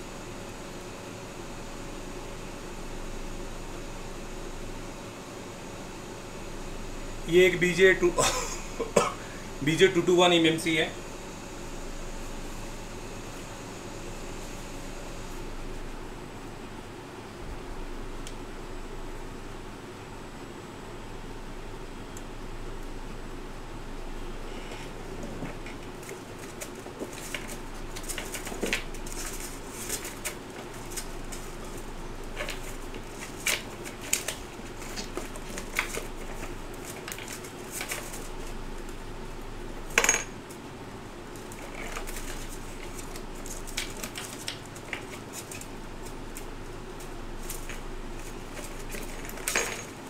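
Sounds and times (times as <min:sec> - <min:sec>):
steady background hum: 0:00.0 - 0:50.0.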